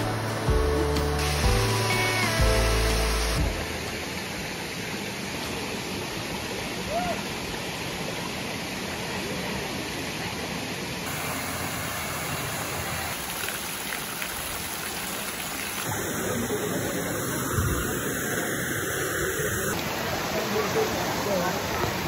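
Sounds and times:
water splashing into pool: 0:11.0 - 0:17.8.

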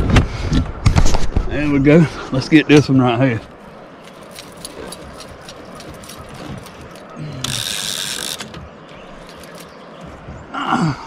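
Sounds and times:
fishing reel ratchet clicking: 0:07.4 - 0:08.5.

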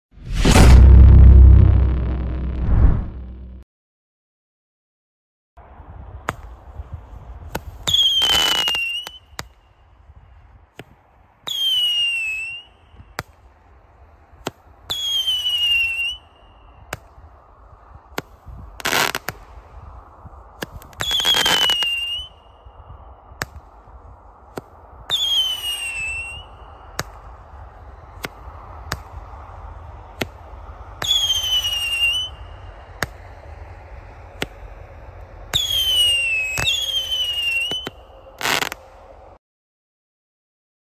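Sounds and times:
heavy firework bang: 0:00.2 - 0:03.4
firework cracks and pops: 0:07.5 - 0:09.6, 0:18.1 - 0:22.3, 0:23.4 - 0:23.9, 0:24.5 - 0:30.4, 0:35.5 - 0:38.9
firework whistle: 0:07.8 - 0:09.5, 0:11.4 - 0:13.2, 0:14.9 - 0:17.2, 0:20.8 - 0:23.2, 0:25.1 - 0:39.4.

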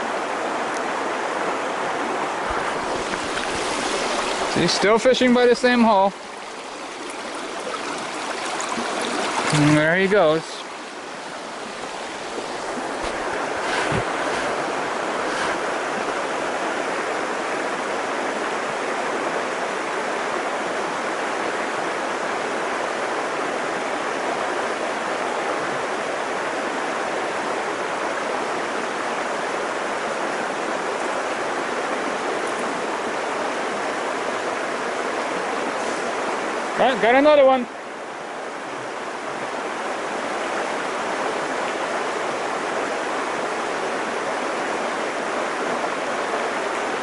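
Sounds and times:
brook flowing over stones: 0:00.0 - 0:47.0.

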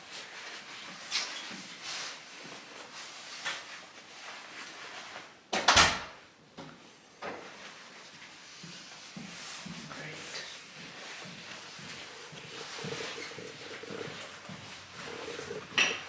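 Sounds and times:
clothing rustling: 0:00.0 - 0:05.4, 0:07.4 - 0:16.0.

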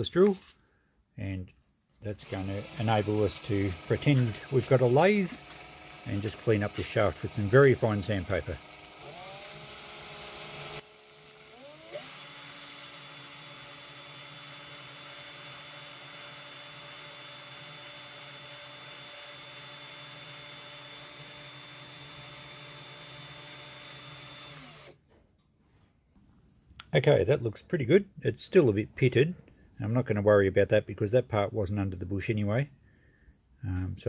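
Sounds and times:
cordless drill whining: 0:01.6 - 0:25.0
sandpaper polishing shaft: 0:02.2 - 0:12.5.

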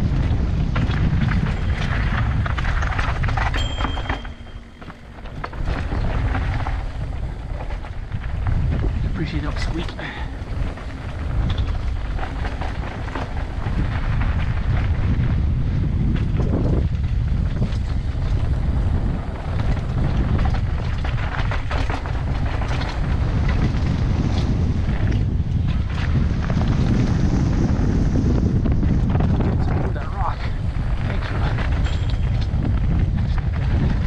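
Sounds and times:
wind buffeting microphone: 0:00.0 - 0:34.0
tyres crunching over dirt and rock: 0:00.1 - 0:27.8
bike rattling clicks: 0:00.3 - 0:15.2, 0:30.5 - 0:33.9.

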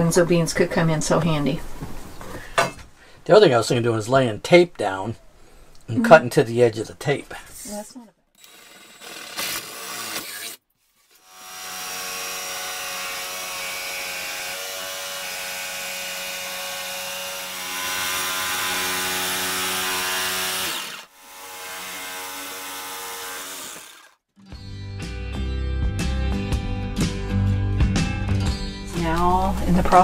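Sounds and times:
jigsaw cutting wood: 0:08.4 - 0:24.2
background music: 0:24.4 - 0:30.0.

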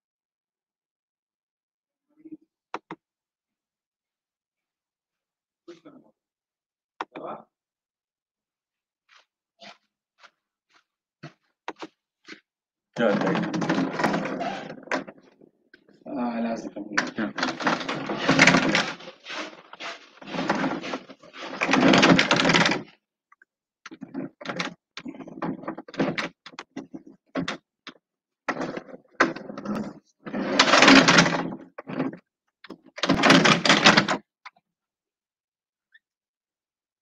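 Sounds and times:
person talking over video call: 0:05.6 - 0:06.2, 0:07.0 - 0:07.6, 0:13.0 - 0:15.0, 0:15.8 - 0:19.0.

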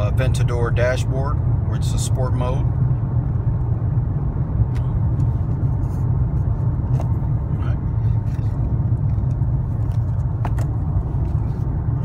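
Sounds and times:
car interior engine and tyre rumble: 0:00.0 - 0:12.0.

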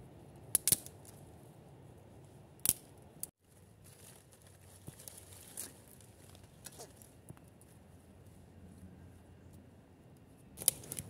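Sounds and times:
secateurs snipping twigs: 0:00.5 - 0:01.2, 0:02.6 - 0:03.3, 0:10.6 - 0:11.0
sticks clicking and rustling: 0:10.6 - 0:11.0.

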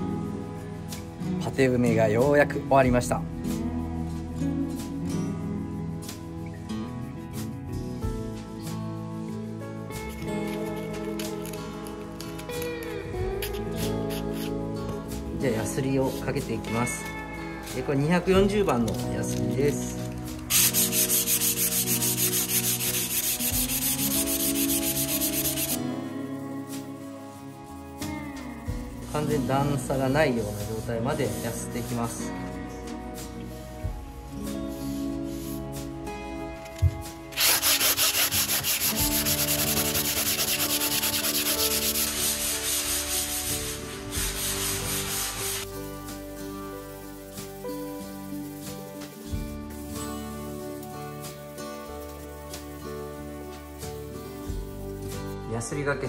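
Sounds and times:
background music: 0:00.0 - 0:56.0
sandpaper rasping on a wall: 0:20.5 - 0:25.8, 0:37.3 - 0:50.4.

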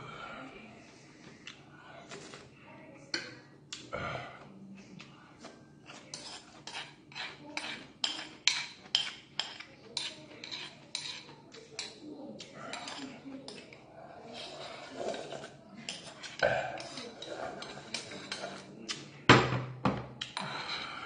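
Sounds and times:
metal spoon scraping a bowl: 0:05.8 - 0:19.0.

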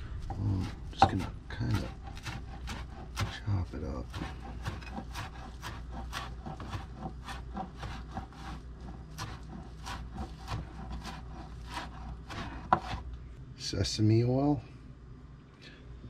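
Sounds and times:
knife chopping on plastic board: 0:00.3 - 0:13.1.

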